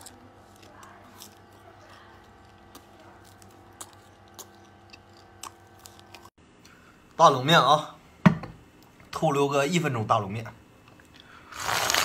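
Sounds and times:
crunchy snack being chewed: 0.0s - 6.3s, 11.5s - 12.0s
faint steady hum: 0.0s - 12.0s.

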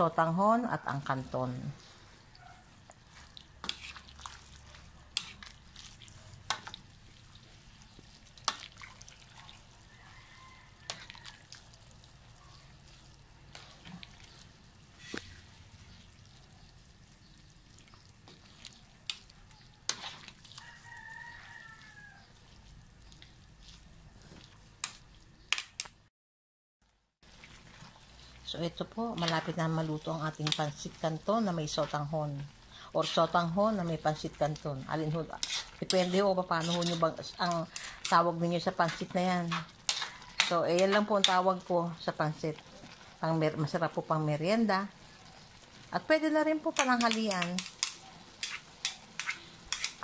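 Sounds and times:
wet stirring of noodles: 0.1s - 26.0s, 26.8s - 50.0s
utensils scraping a metal wok: 3.6s - 6.8s, 13.4s - 15.5s, 18.3s - 21.8s, 27.6s - 41.6s, 46.6s - 50.0s
distant rooster crowing: 9.8s - 11.6s, 20.6s - 22.4s.

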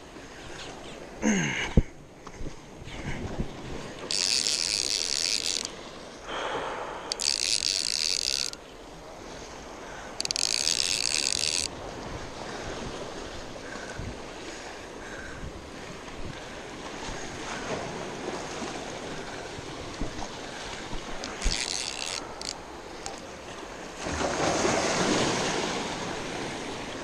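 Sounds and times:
fishing reel drag buzzing: 4.0s - 5.8s, 6.4s - 8.8s, 10.0s - 11.8s, 21.1s - 23.4s
waves washing against rocks: 22.4s - 27.0s.

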